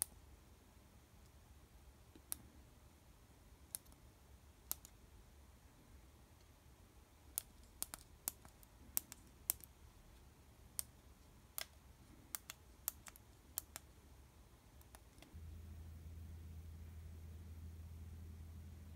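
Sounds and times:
steady low hum: 0.2s - 18.9s.

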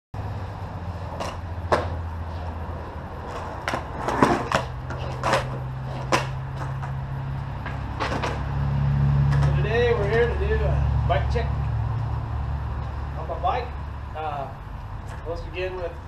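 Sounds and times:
skateboard rolling on concrete: 0.2s - 10.6s
skateboard clacks and knocks: 3.3s - 7.0s.

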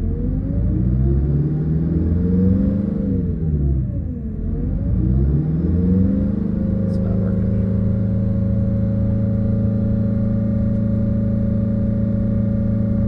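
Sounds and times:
bus engine idling: 6.9s - 8.4s.

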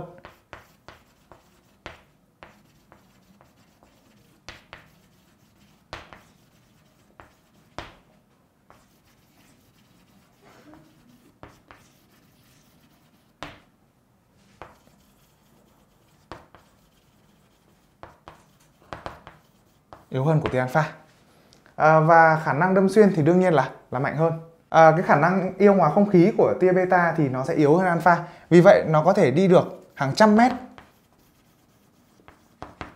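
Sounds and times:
chalk writing on a chalkboard: 0.1s - 8.1s, 8.7s - 13.7s, 14.4s - 21.0s, 29.6s - 32.9s.

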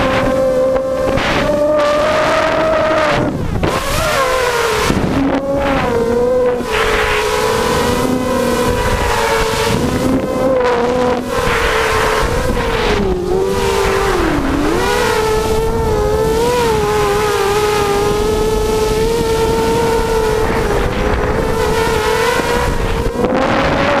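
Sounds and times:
drone motors whining: 0.0s - 24.0s
wind buffeting microphone: 0.0s - 24.0s.

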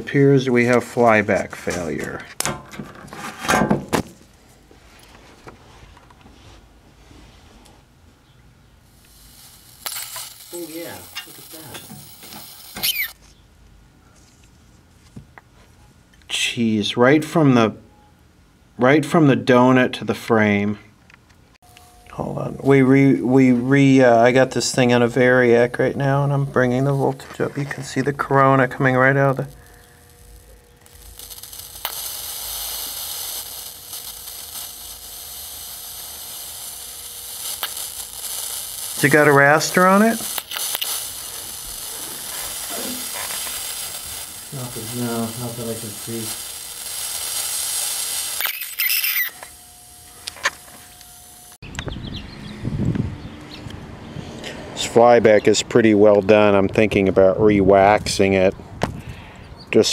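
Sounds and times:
electrical arcing buzz: 8.8s - 13.2s, 21.6s - 52.0s.

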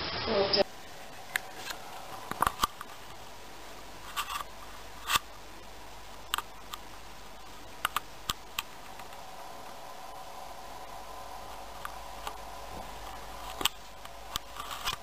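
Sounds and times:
low steady hiss: 0.0s - 15.0s
sharp clicks and ticks: 1.2s - 3.2s, 6.1s - 9.3s, 11.7s - 15.0s.

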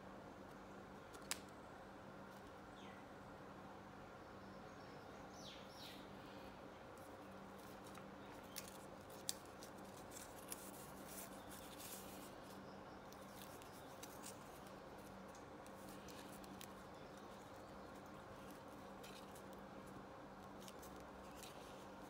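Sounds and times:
card panels rustling: 7.0s - 22.0s.

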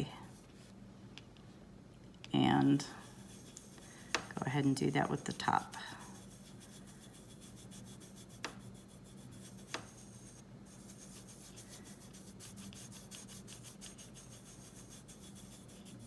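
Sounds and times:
dry rubbing of fingertips: 2.6s - 4.4s, 6.0s - 16.0s.

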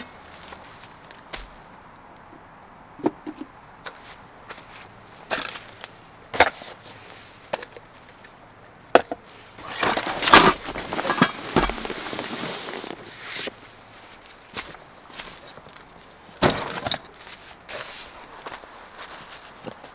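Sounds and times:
fabric rustling and scraping: 9.3s - 15.5s, 17.1s - 19.9s.

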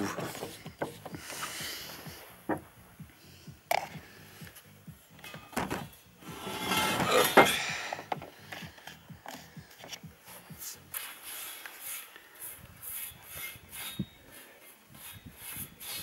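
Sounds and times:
steel bar scraping on wood: 5.2s - 8.6s, 10.9s - 16.0s.

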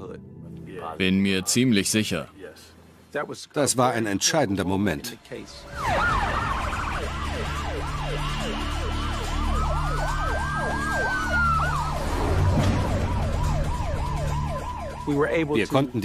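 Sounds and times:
siren slow wail: 5.5s - 16.0s
siren fast yelp: 5.6s - 16.0s.

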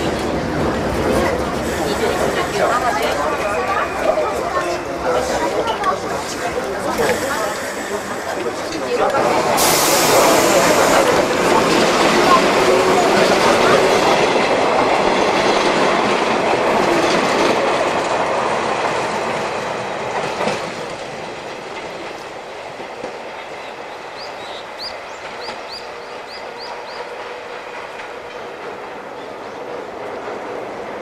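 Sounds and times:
electric train pulling away: 6.6s - 16.2s.

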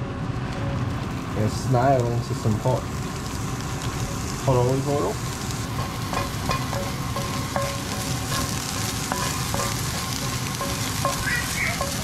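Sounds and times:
meat sizzling in a frying pan: 0.4s - 12.0s
wooden spoon scraping a pan: 5.7s - 12.0s.

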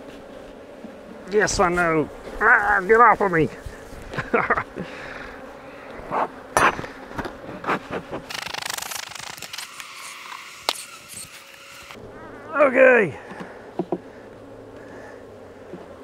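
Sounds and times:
honey bees buzzing: 0.0s - 16.0s.

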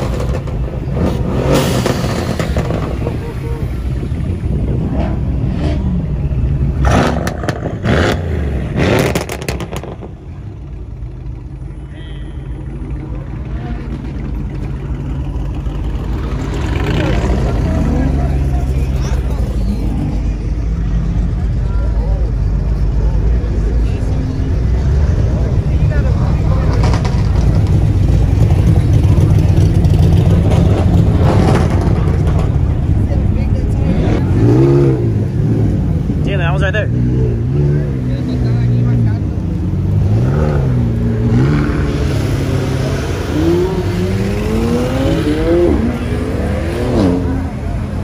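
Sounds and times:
car exhaust revving: 0.0s - 11.6s
car engine rumbling deep: 0.0s - 48.0s.

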